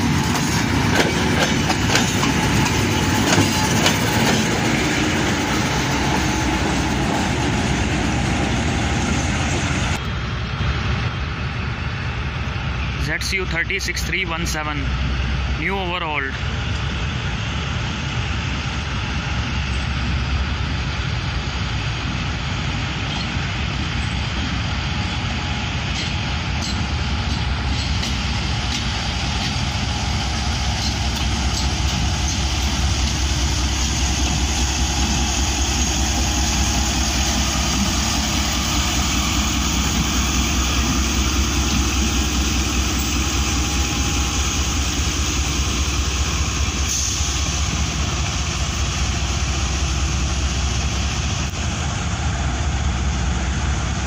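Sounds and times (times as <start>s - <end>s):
diesel locomotive engine droning: 0.0s - 54.0s.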